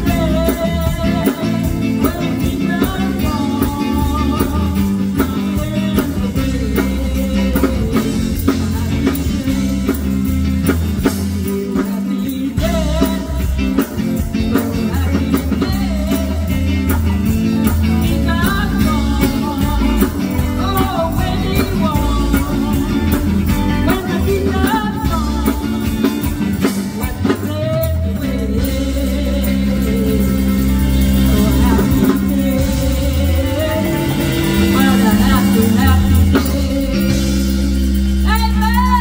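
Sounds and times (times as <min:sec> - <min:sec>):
drum kit beat: 0:00.0 - 0:39.0
electric guitars: 0:00.0 - 0:39.0
woman singing: 0:00.0 - 0:39.0.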